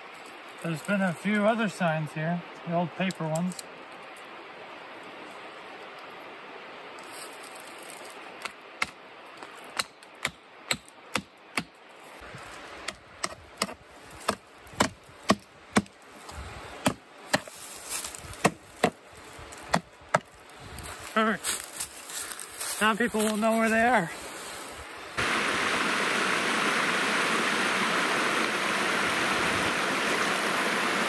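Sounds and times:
hammering on wood: 0:12.9 - 0:15.9.

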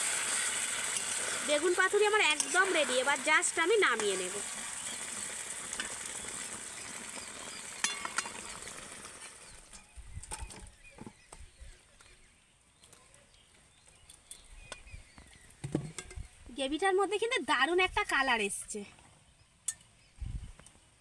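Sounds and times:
curry sizzling in a metal pan: 0:00.0 - 0:09.9.

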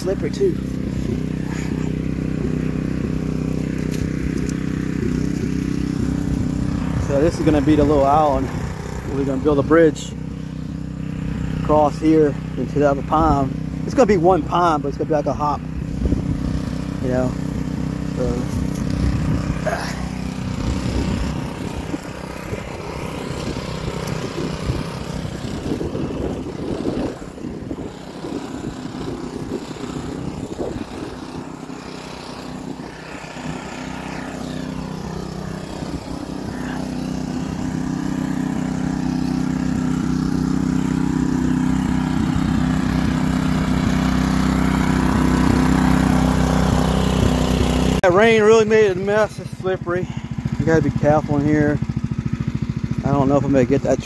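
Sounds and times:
water pump engine running: 0:00.0 - 0:54.0
footsteps on dry leaves: 0:00.5 - 0:07.0, 0:18.4 - 0:42.1.

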